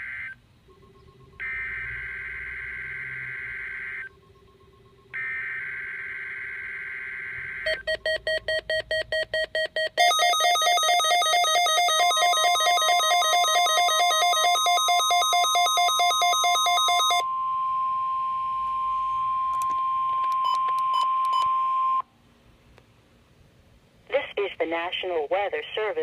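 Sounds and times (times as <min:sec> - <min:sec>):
rapid beeps: 0:00.7 - 0:01.8, 0:03.3 - 0:06.2, 0:07.6 - 0:17.3
fast beeping in several pitches: 0:07.6 - 0:19.5.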